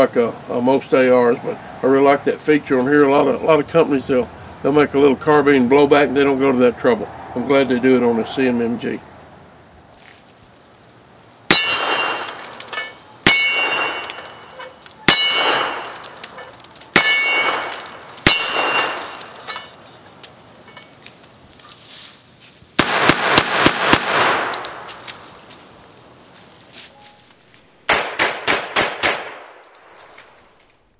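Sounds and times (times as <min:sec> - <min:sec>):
steel plate ringing: 0:11.5 - 0:19.8
gunshots: 0:15.1 - 0:16.2, 0:17.0 - 0:19.4, 0:22.8 - 0:24.9, 0:27.9 - 0:29.6.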